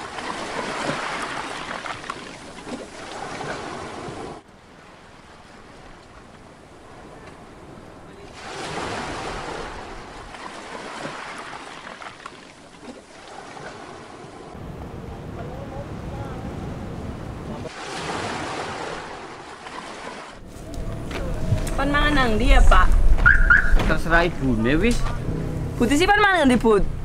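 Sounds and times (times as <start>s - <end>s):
sea surf washing on beach: 0.0s - 22.2s
wind noise on microphone: 20.4s - 24.0s.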